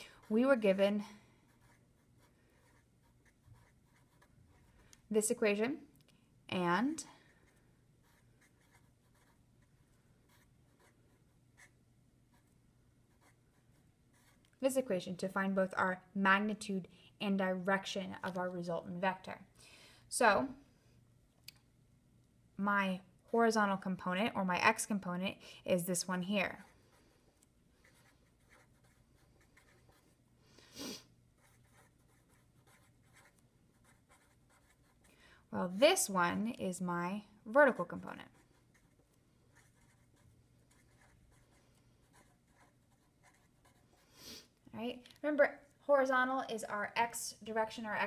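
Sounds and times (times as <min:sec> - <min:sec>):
marker scratching on paper: 0:01.5 - 0:04.8, 0:07.4 - 0:14.5, 0:27.8 - 0:30.2, 0:30.8 - 0:35.1, 0:37.6 - 0:44.1.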